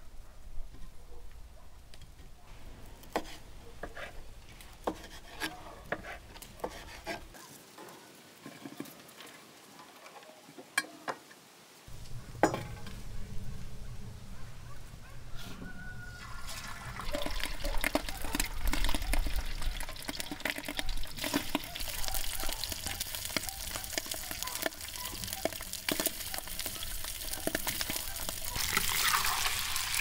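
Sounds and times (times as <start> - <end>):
low background rumble: 11.9 - 16.0
utensils clinking against pan: 17.2 - 29.5.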